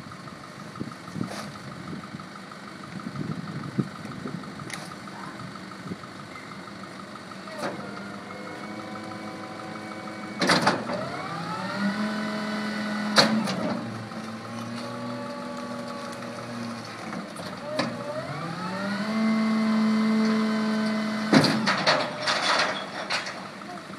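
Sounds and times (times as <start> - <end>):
garbage truck engine running: 0.0 - 23.9
metal clanks from hopper: 10.2 - 11.2, 13.0 - 14.9, 20.2 - 23.6.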